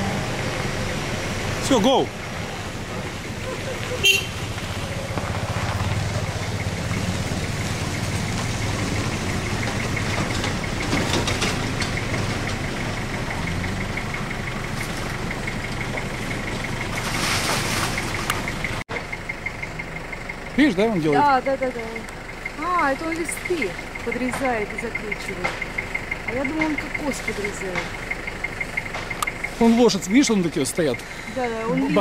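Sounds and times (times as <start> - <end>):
engine idling: 0.0 - 32.0
rustling noise: 16.9 - 18.6.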